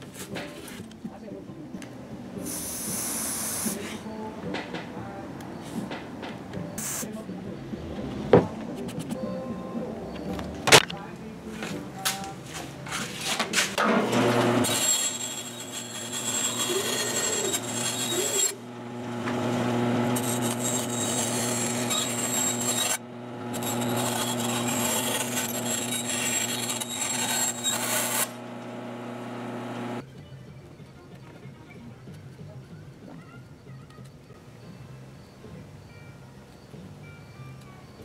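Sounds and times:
band saw cutting plastic: 0:12.9 - 0:30.0.

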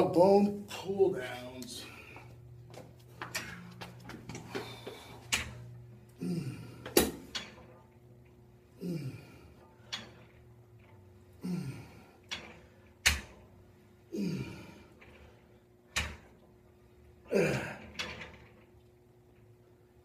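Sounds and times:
cable and weight stack whirring: 0:00.1 - 0:20.0.

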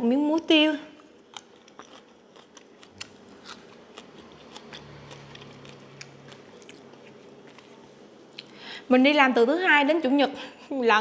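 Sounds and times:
close-up chewing: 0:01.2 - 0:08.6.

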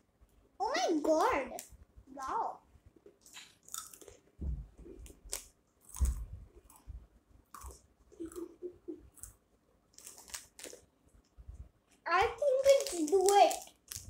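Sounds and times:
person chewing crunchy cereal: 0:03.1 - 0:04.2, 0:05.1 - 0:06.9, 0:07.5 - 0:08.5, 0:09.1 - 0:10.9
dull low thuds: 0:04.4 - 0:05.0.

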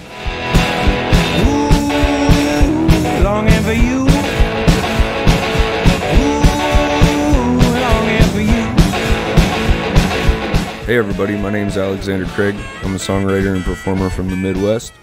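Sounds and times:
rock drums driving beat: 0:00.0 - 0:14.8
guitar: 0:00.0 - 0:15.0
gliding melody line: 0:06.1 - 0:10.5.

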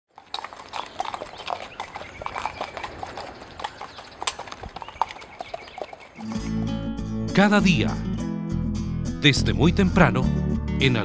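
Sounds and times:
horse hooves on dirt road: 0:00.1 - 0:06.9.

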